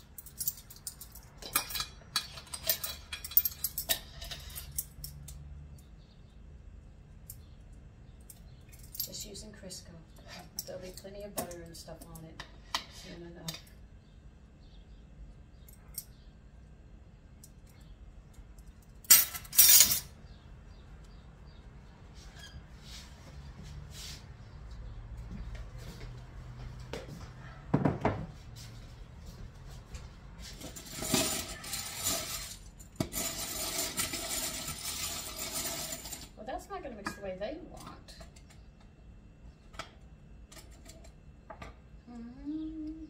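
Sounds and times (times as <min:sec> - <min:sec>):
beaters clattering against bowl: 0:30.6 - 0:36.4.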